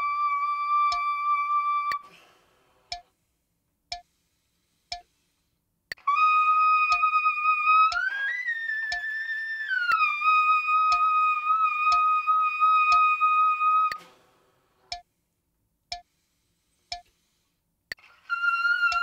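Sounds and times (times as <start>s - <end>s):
metronome clicking: 0.9s - 1.1s, 4.9s - 5.1s, 6.9s - 7.2s, 7.9s - 8.1s, 8.9s - 9.2s, 9.9s - 10.1s, 10.8s - 11.2s, 11.9s - 12.2s, 12.9s - 13.2s.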